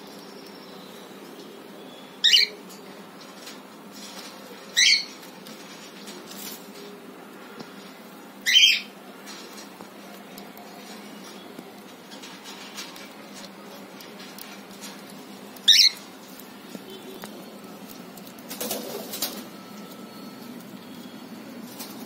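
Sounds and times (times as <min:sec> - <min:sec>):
cockatiel calls: 0:15.7 - 0:16.0.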